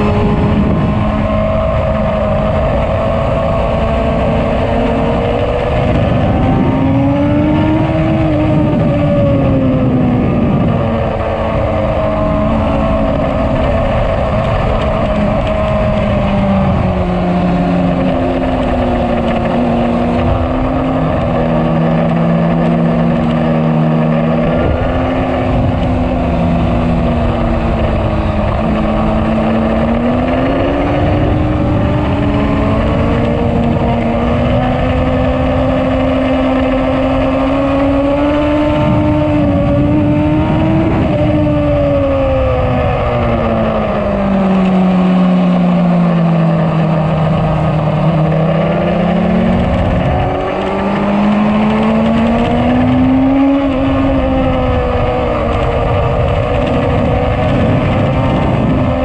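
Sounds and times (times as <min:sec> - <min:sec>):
motorcycle engine running hard: 0:00.0 - 0:59.0
wind noise: 0:00.0 - 0:59.0.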